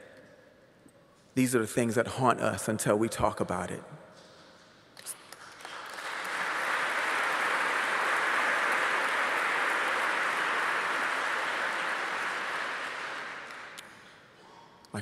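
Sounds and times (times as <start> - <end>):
audience applauding: 5.3 - 14.2.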